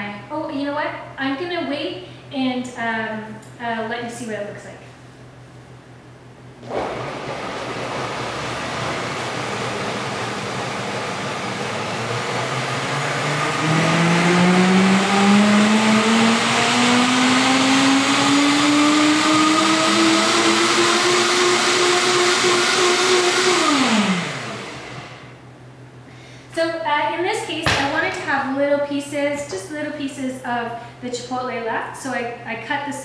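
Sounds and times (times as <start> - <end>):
blender motor running: 7.2 - 25.4.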